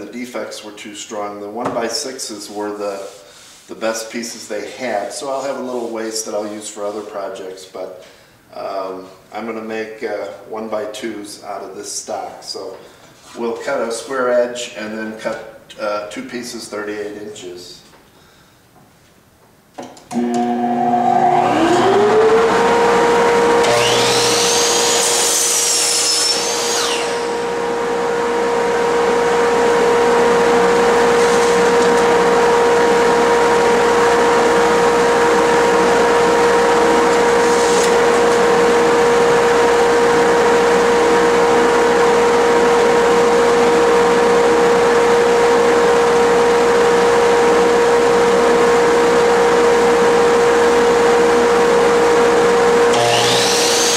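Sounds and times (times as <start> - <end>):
miter saw whine: 20.1 - 45.7, 46.6 - 53.9
dust extractor humming: 20.1 - 53.9.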